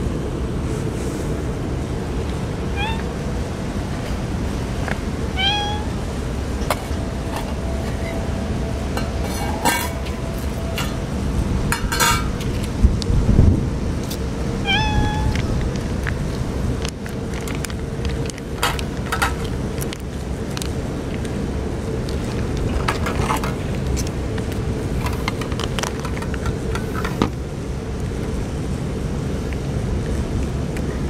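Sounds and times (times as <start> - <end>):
wind rumble on microphone: 0.0 - 31.0
cats meowing: 2.6 - 3.2, 5.3 - 6.1, 14.6 - 15.6
clicks and rustles: 15.2 - 21.4, 22.0 - 27.4.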